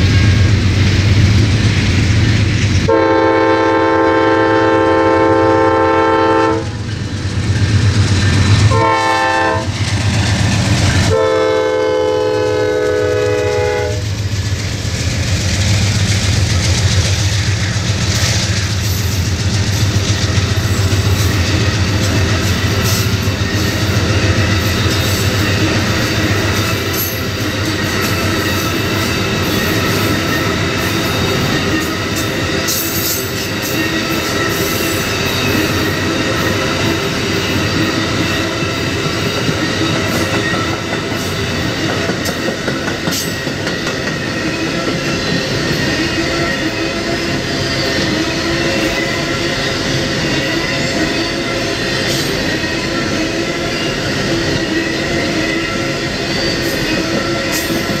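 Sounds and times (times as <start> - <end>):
train wheels clattering on rail: 0.0 - 58.0
train chime horn: 2.9 - 6.8, 8.7 - 9.7, 11.1 - 14.1, 44.2 - 58.0.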